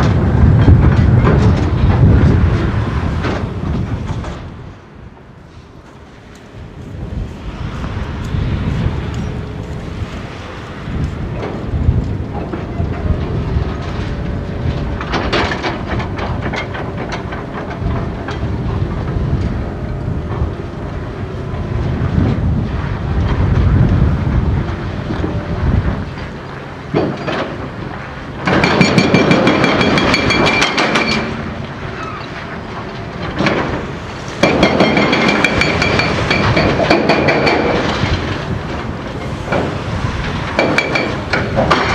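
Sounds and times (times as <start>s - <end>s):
diesel truck engine rumbling: 0.0s - 41.9s
metallic screeching and clanking: 28.5s - 32.5s.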